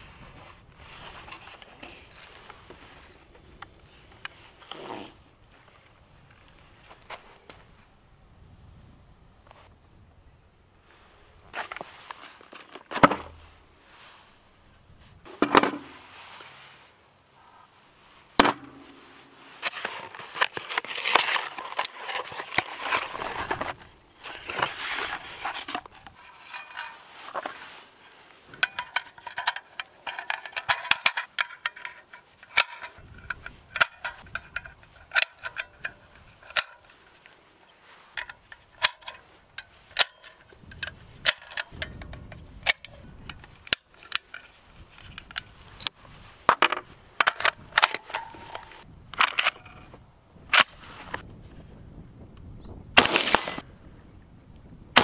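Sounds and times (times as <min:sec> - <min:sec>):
cardboard box rustling: 0:19.6 - 0:26.0
cartridges clicking into magazine: 0:53.0 - 0:53.6.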